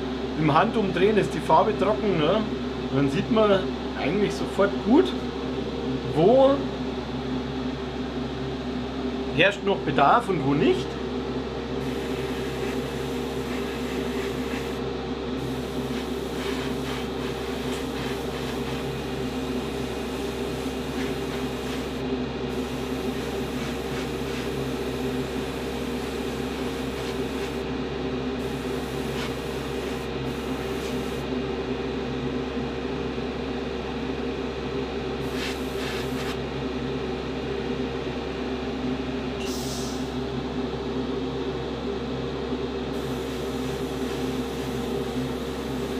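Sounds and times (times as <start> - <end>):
compressor motor hum: 0.0 - 45.9
airbrush air hiss: 11.8 - 14.8, 15.4 - 27.6, 28.4 - 31.2, 35.2 - 36.4, 39.4 - 40.2, 43.0 - 45.9.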